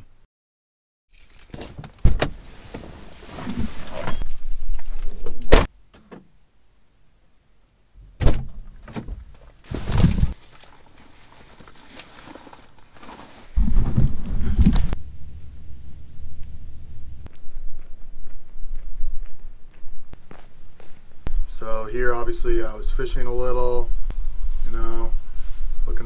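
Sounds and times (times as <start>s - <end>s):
rustling: 8.8s - 21.4s.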